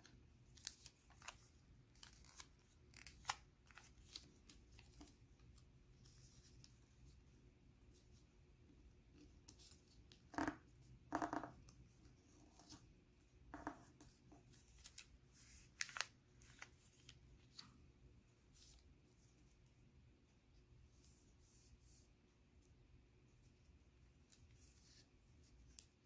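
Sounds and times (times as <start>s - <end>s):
paper rustling and crinkling: 0.4s - 5.3s, 14.4s - 17.7s.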